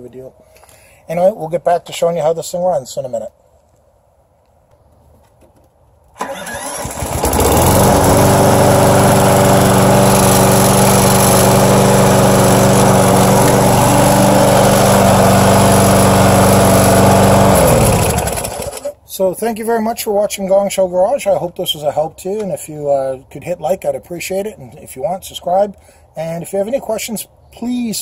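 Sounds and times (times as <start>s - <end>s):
lawnmower engine: 6.2s - 19.0s.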